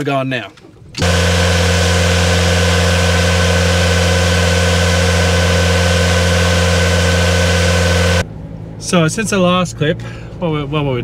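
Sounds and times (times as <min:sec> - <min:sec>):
engine humming steadily: 0:00.9 - 0:10.9
high whine: 0:01.0 - 0:08.2.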